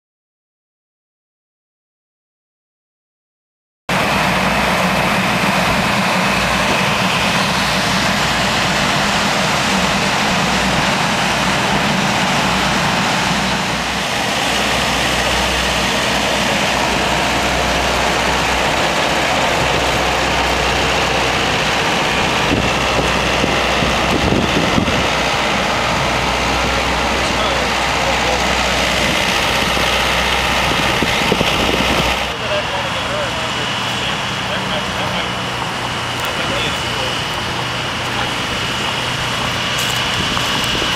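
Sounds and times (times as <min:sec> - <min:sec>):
engine rumble: 0:03.9 - 0:40.9
road or wind noise hiss: 0:03.9 - 0:40.9.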